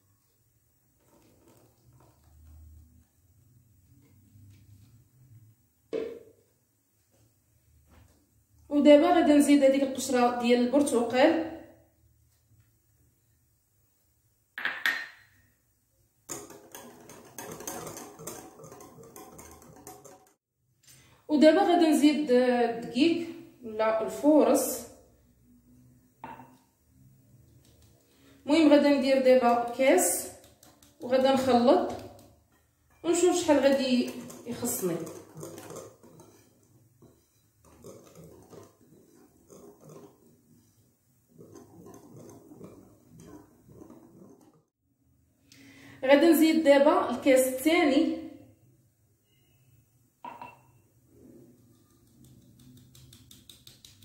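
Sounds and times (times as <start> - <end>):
whisk squelching in batter: 0.8 - 3.0, 16.3 - 20.4, 27.4 - 44.7, 51.6 - 54.0
whisk clinking against glass bowl: 16.3 - 20.3, 50.3 - 50.7.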